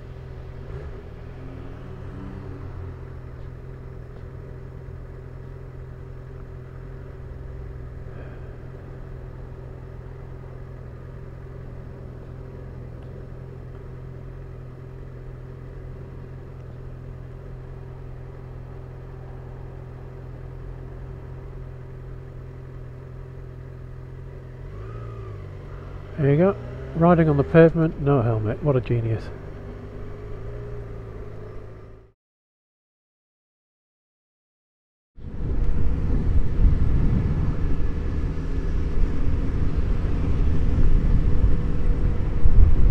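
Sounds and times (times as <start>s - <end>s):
motorcycle engine idling: 2.8s - 32.1s.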